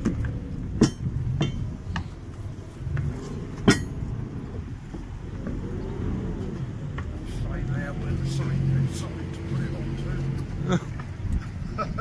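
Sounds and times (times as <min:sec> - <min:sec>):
low steady rumble: 0:00.0 - 0:12.0
metallic clinks of boat fittings: 0:03.6 - 0:04.0.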